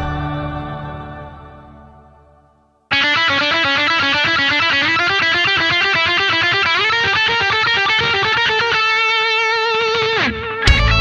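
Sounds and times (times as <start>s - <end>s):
fast electric guitar riff: 2.9s - 11.0s.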